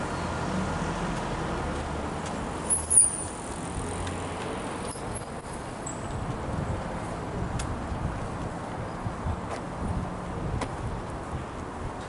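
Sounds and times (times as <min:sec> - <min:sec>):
street traffic: 0:00.0 - 0:12.0
sharp high squeak: 0:02.7 - 0:03.3.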